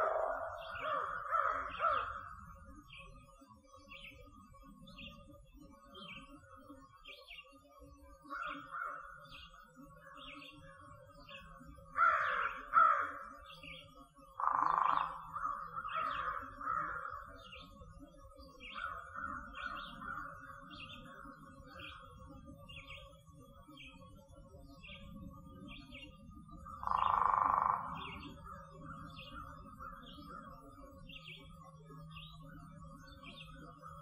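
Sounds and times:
small bird chirping: 0.0s - 2.3s, 13.5s - 16.4s, 25.6s - 30.3s
crows cawing: 0.0s - 2.4s, 12.0s - 13.3s, 14.4s - 17.3s, 26.8s - 28.2s.

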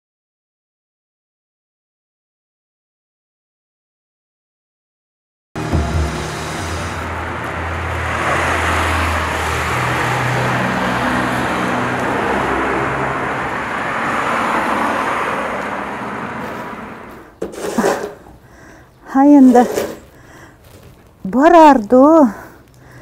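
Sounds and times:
cars passing: 5.6s - 20.7s.

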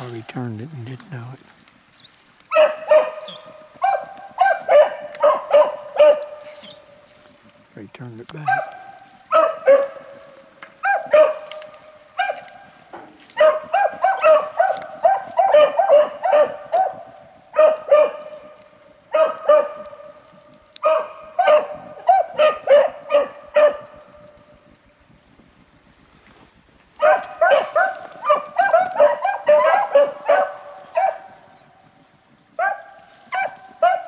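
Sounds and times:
dogs barking: 2.4s - 7.4s, 8.0s - 24.6s, 27.0s - 31.8s, 32.5s - 34.0s.

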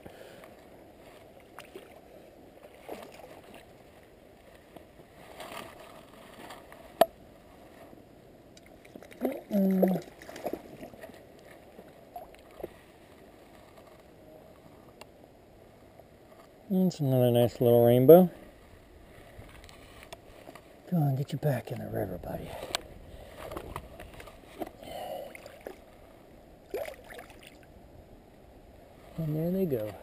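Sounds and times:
water splashes: 1.2s - 4.1s, 8.6s - 12.8s, 24.5s - 25.9s, 26.6s - 27.7s.

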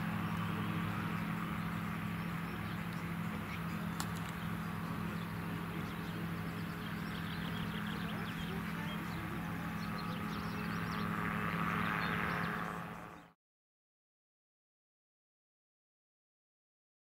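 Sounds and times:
gyroplane engine droning: 0.0s - 13.4s.

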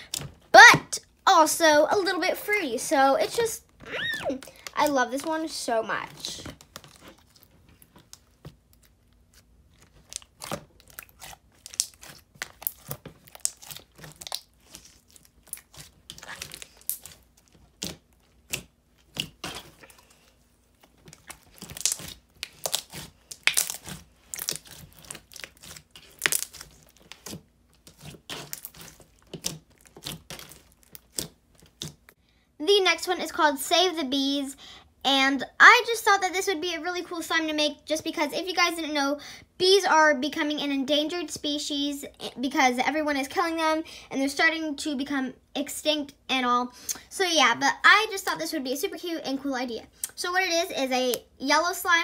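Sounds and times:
slime with foam beads crackling: 0.0s - 32.2s
hands squishing slime: 1.5s - 32.1s.

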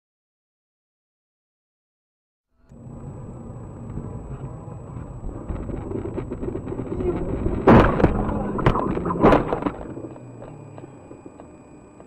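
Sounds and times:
road noise: 2.7s - 11.6s.

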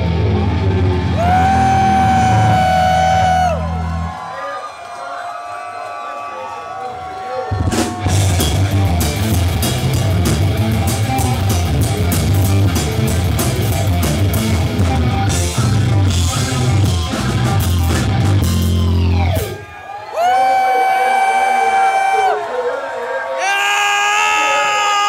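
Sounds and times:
rock band playing live: 0.0s - 4.1s, 7.5s - 19.7s.

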